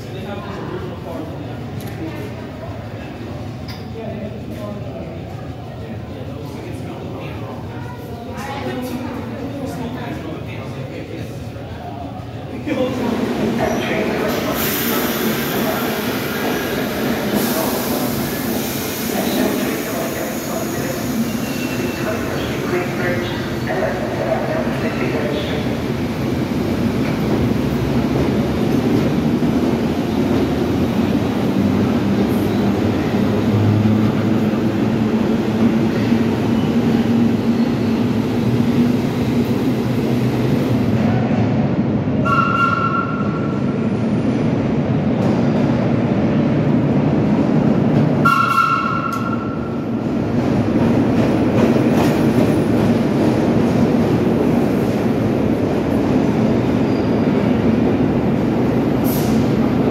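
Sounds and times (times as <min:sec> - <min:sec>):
subway cars rumbling on track: 0:00.0 - 0:59.9
train horn blasts: 0:42.2 - 0:43.2, 0:48.2 - 0:49.4.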